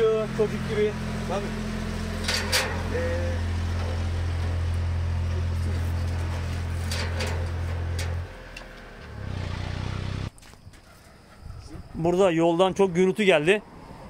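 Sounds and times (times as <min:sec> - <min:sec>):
vehicle engine humming: 0:00.0 - 0:10.4.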